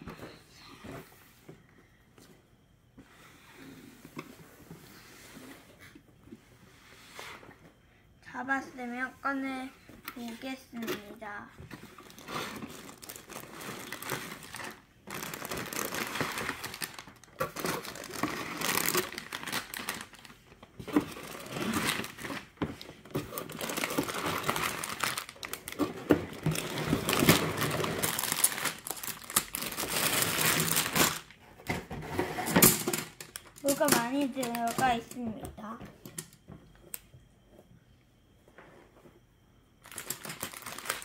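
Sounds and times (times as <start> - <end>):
plastic bags crinkling: 11.9 - 31.4, 32.6 - 35.2, 39.8 - 41.0.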